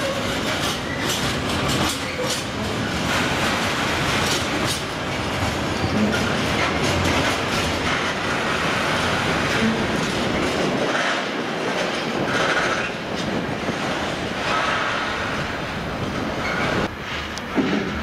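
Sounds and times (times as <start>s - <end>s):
train wheel squeals: 0.0s - 3.0s, 5.7s - 6.8s, 16.4s - 16.9s
freight train wheels clacking: 0.0s - 18.0s.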